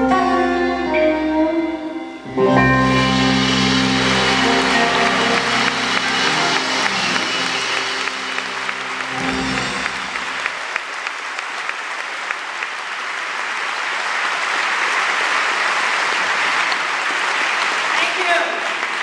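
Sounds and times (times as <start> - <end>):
band's last notes ringing: 0.0 - 10.5
audience applauding: 2.7 - 19.0.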